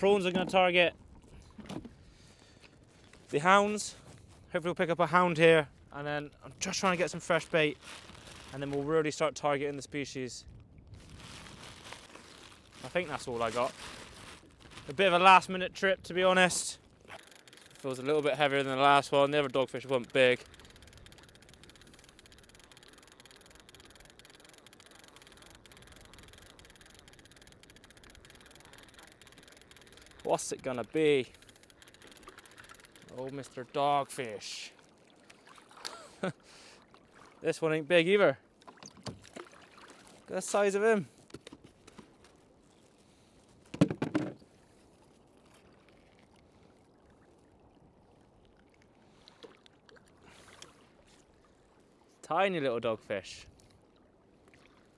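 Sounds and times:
faint water lapping: 0:00.0 - 0:43.7, 0:44.4 - 0:54.9
fishing reel clicking: 0:17.0 - 0:34.1
loud clatter of knocks: 0:43.7 - 0:44.4.

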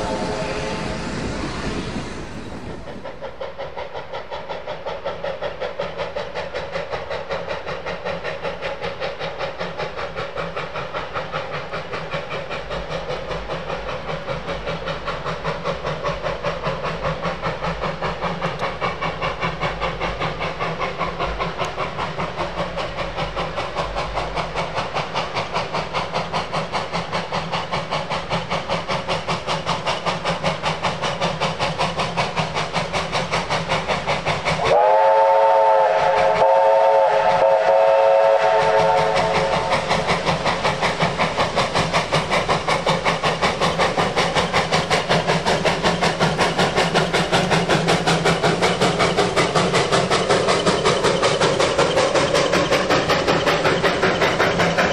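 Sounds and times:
steam locomotive chuffing: 0:00.0 - 0:54.9
steam whistle chord: 0:34.7 - 0:39.6.

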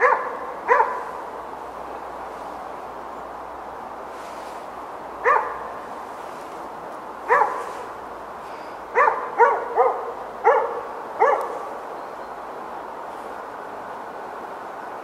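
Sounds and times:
dog barking: 0:00.0 - 0:01.2, 0:05.2 - 0:05.7, 0:07.3 - 0:07.9, 0:08.9 - 0:11.7.

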